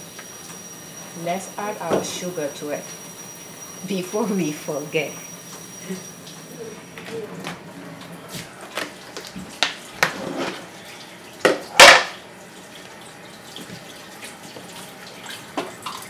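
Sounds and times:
bowls and utensils knocking: 0:11.5 - 0:12.2.

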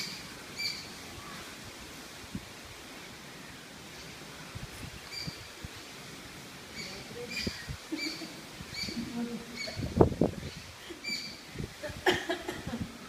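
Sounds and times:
wind rumbling on microphone: 0:00.0 - 0:03.3, 0:03.9 - 0:13.0
bird chirping: 0:06.7 - 0:11.4.

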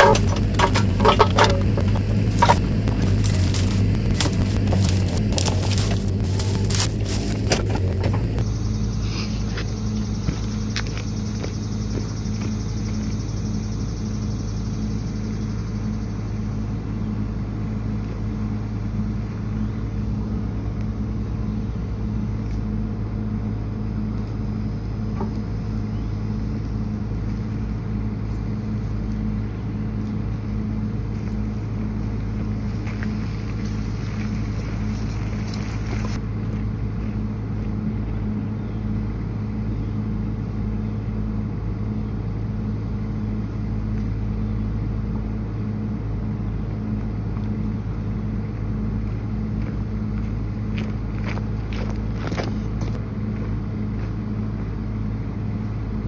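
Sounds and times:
excavator engine running: 0:00.0 - 0:56.0.

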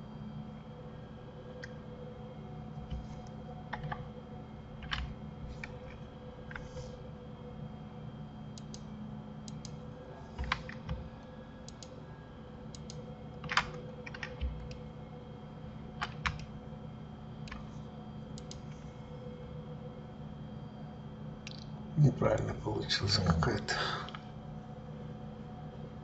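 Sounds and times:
low electrical hum: 0:00.0 - 0:26.0
keyboard keys clicking: 0:04.8 - 0:05.9, 0:12.7 - 0:14.8, 0:16.0 - 0:16.5.

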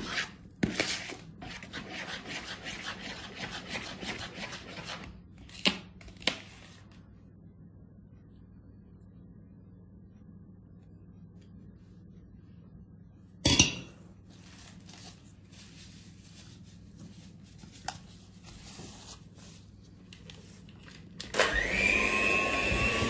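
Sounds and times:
electric hand mixer whine: 0:21.3 - 0:23.0.

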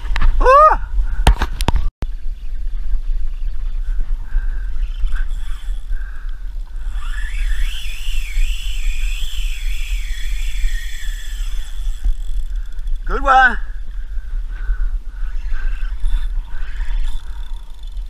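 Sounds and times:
wind on microphone: 0:00.0 - 0:18.0
fishing reel drag whining: 0:04.4 - 0:18.0.

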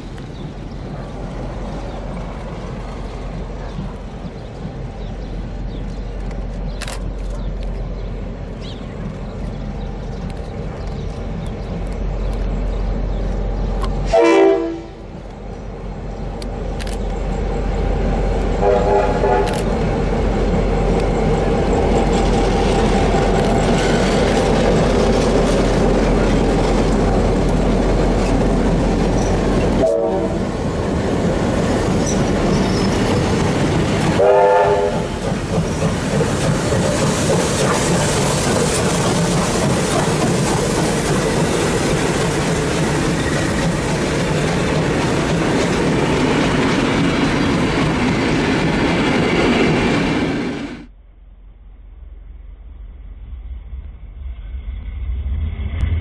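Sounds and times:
diesel locomotive engine: 0:00.0 - 0:56.0
train horn blasts: 0:14.0 - 0:15.1, 0:18.6 - 0:19.6, 0:29.7 - 0:30.6, 0:34.1 - 0:35.2
train wheel clatter: 0:19.3 - 0:50.8.

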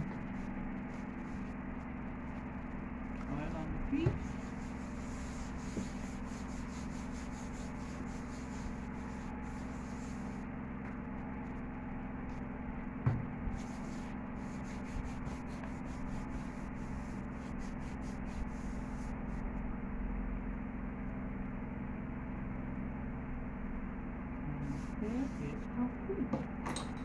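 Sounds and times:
steady low hum: 0:00.0 - 0:27.0
nail buffer rubbing toenails: 0:13.5 - 0:18.9.

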